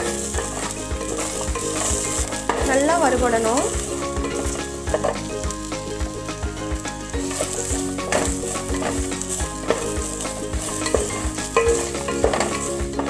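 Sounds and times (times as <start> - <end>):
faint background music: 0.0 - 13.0
garlic sizzling in oil: 0.0 - 13.0
wooden spatula scraping pan: 0.0 - 13.0.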